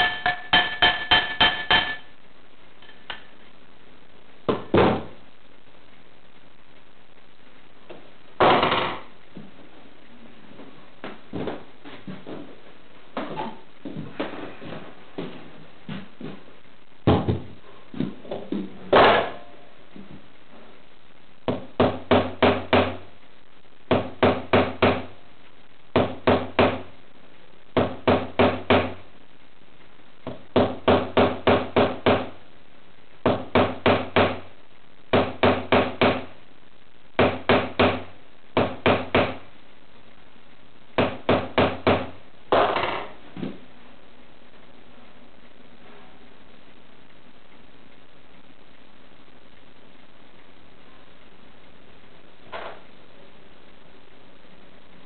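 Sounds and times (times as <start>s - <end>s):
hammer knocking on metal ring: 0.0s - 2.0s.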